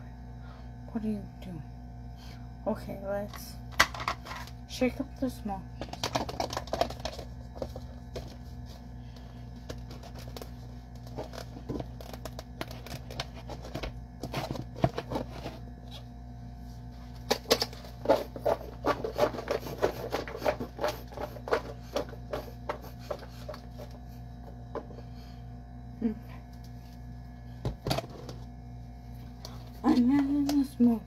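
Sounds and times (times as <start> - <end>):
sausages rattling in plastic container: 5.8 - 8.4.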